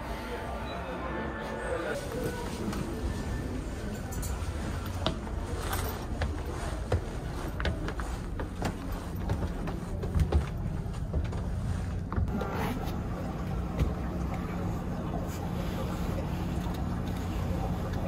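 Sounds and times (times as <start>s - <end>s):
footsteps on wooden stairs: 5.0s - 12.3s.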